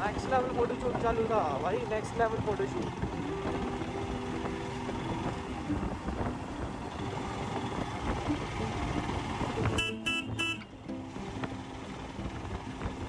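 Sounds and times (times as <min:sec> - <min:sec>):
motorcycle engine running: 0:00.0 - 0:13.0
wind and road noise: 0:00.0 - 0:13.0
horn beeps: 0:09.7 - 0:10.8.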